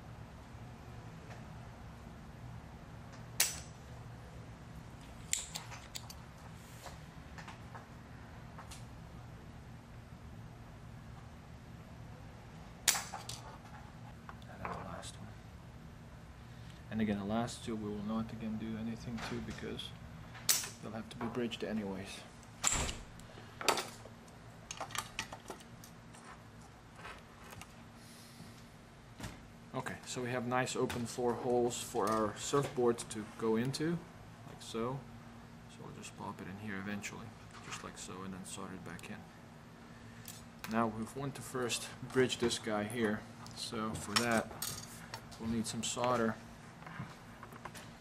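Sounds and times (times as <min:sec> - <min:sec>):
desoldering pump snapping: 0:05.0 - 0:06.2.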